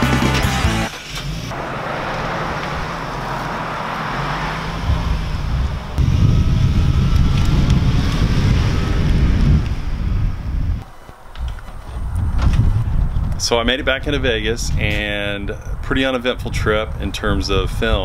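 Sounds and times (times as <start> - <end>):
van driving past: 0.6 - 10.9
wind buffeting microphone: 1.5 - 18.0.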